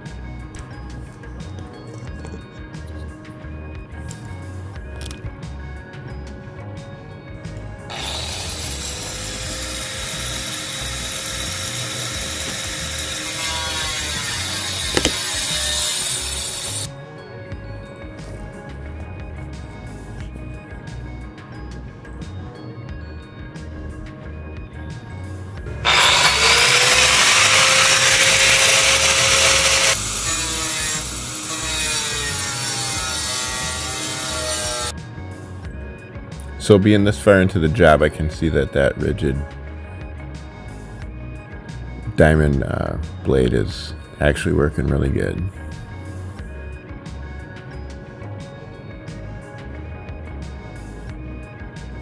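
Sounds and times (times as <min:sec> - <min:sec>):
faint background music: 0:00.0 - 0:52.0
angle grinder cutting metal: 0:07.9 - 0:16.9, 0:25.6 - 0:34.9.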